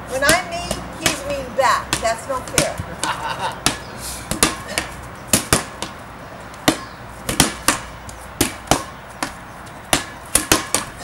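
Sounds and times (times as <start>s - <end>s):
rubber ball smacks on concrete: 0.2s - 6.0s, 6.6s - 11.0s.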